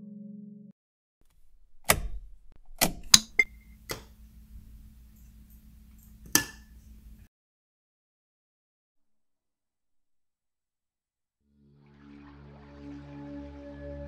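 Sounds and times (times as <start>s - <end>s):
sharp clicks and knocks: 1.2s - 4.2s
low steady hum: 1.3s - 7.3s.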